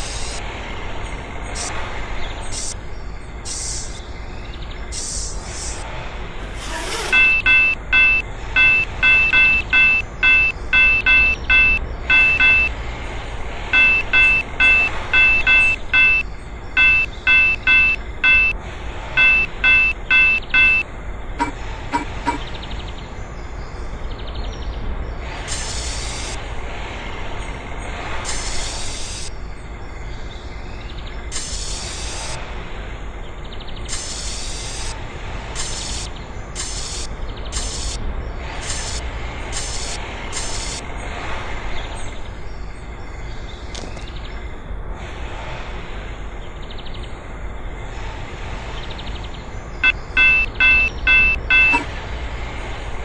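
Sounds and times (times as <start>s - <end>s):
hissing bursts: 6.4s - 7.4s.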